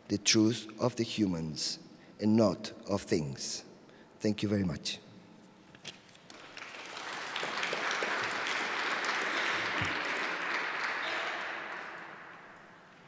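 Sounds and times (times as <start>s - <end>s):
audience applauding: 6.3s - 13.0s.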